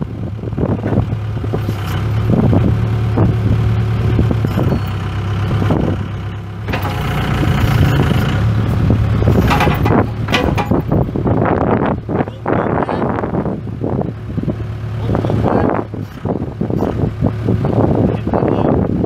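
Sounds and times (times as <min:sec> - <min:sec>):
diesel engine running: 0:00.0 - 0:19.0
metal clanks: 0:06.7 - 0:08.0, 0:09.2 - 0:11.2.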